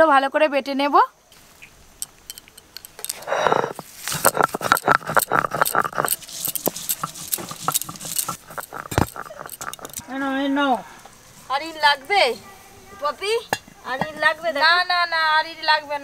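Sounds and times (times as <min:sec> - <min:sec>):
rustle: 0:00.9 - 0:16.0
utensils clicking and clinking: 0:02.0 - 0:10.0.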